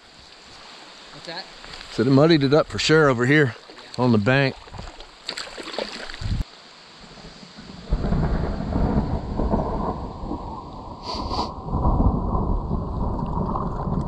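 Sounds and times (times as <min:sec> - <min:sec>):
thunder rumbling: 0:07.1 - 0:14.0.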